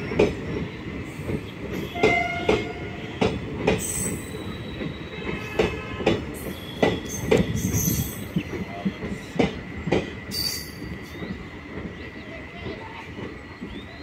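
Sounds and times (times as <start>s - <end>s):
low train rumble: 0.0s - 14.0s
train wheels clacking: 0.0s - 14.0s.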